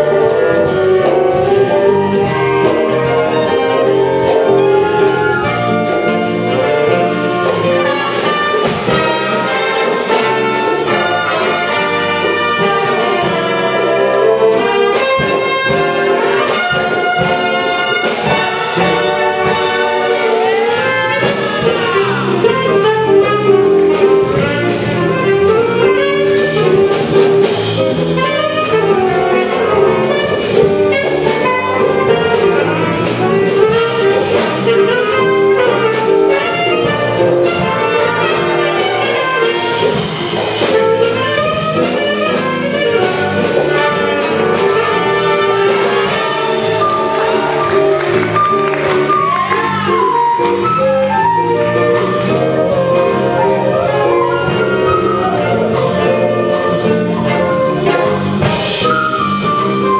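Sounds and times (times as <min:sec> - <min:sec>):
wind band playing jazz: 0:00.0 - 0:59.9
solo flute: 0:01.5 - 0:06.2, 0:46.1 - 0:58.0, 0:58.8 - 0:59.9.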